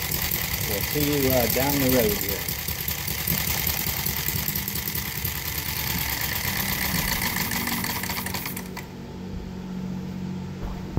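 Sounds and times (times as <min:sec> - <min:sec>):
small engine running with fast rattle: 0:00.0 - 0:08.9
low hum: 0:03.7 - 0:10.9.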